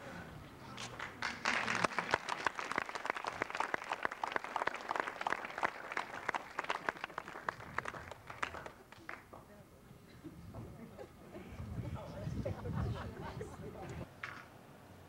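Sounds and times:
audience applauding: 0:00.8 - 0:09.4.

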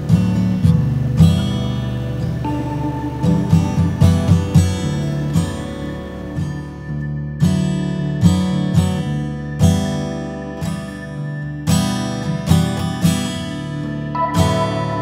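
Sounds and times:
strummed acoustic guitar: 0:00.0 - 0:15.0
held higher note: 0:01.6 - 0:06.7, 0:14.1 - 0:15.0.

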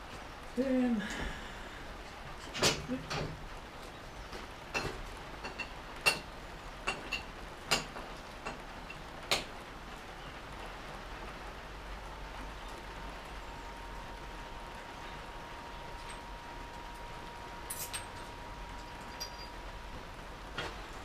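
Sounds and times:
faint steady whine: 0:09.6 - 0:21.0
metal clinks from hand tool: 0:17.7 - 0:18.2, 0:19.0 - 0:19.6.

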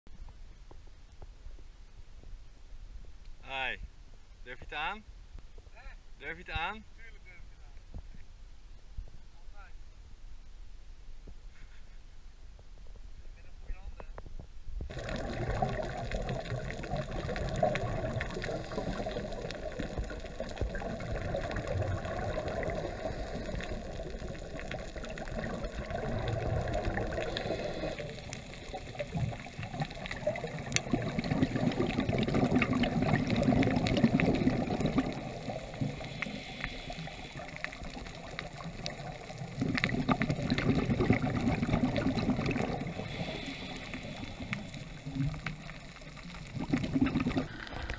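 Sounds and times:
muffled water gurgling: 0:14.8 - 0:47.9.

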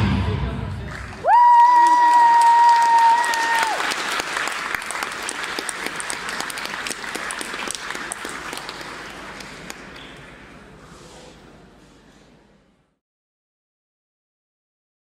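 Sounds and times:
audience applause: 0:00.9 - 0:10.6.

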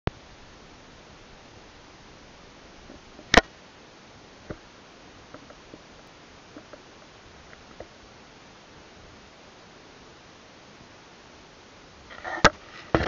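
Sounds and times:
faint irregular ticks and taps: 0:05.3 - 0:05.9, 0:06.5 - 0:06.8, 0:07.5 - 0:07.9.

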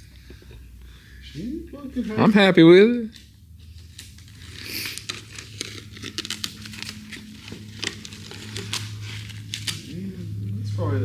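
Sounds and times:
material crinkling: 0:03.0 - 0:10.1.

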